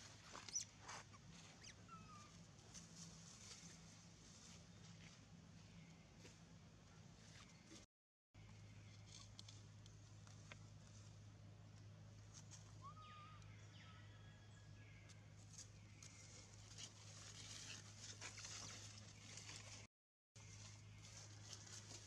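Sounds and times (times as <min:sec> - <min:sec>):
dry leaves crackling: 0:15.4 - 0:22.0.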